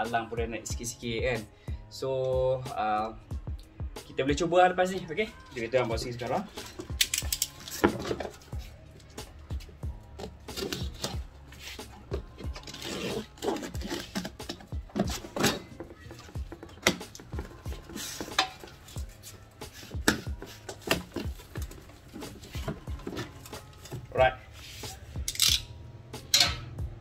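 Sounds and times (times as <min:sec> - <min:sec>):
box cutter slitting packing tape: 0:10.5 - 0:11.2, 0:12.5 - 0:15.7
cardboard scrapes and rustles: 0:10.5 - 0:14.4.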